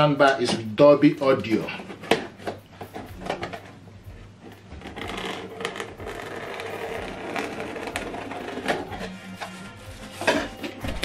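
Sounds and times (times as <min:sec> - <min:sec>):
knife scraping through tape and cardboard: 0:04.9 - 0:10.6.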